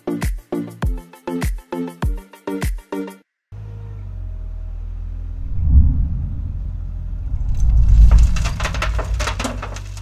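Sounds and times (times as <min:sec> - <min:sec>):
excavator rumbling: 0:05.1 - 0:10.0
sand and stones pouring: 0:07.3 - 0:10.0.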